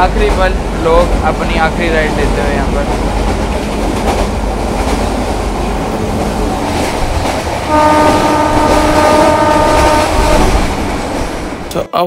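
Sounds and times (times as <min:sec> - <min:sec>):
train wheels rumbling on track: 0:00.0 - 0:11.9
train horn blast: 0:07.7 - 0:10.8.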